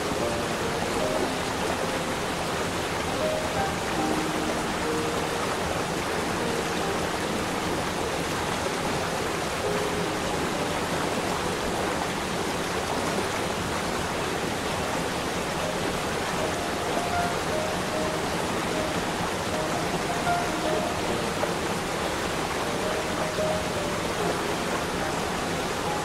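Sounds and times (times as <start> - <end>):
waterfall rushing over rocks: 0.0 - 26.0.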